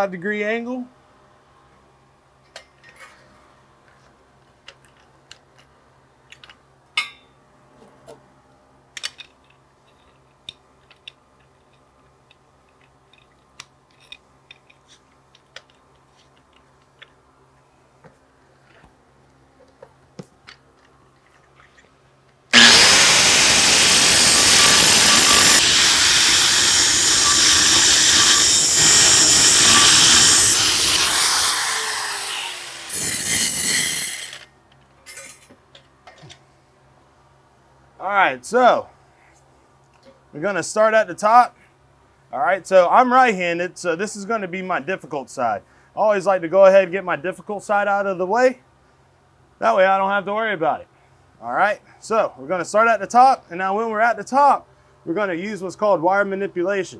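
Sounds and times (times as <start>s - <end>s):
angle grinder grinding steel: 22.5s - 34.4s.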